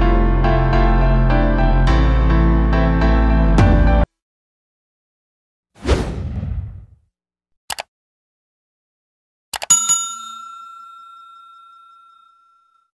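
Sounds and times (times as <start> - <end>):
notification bell ding: 9.7 - 12.9.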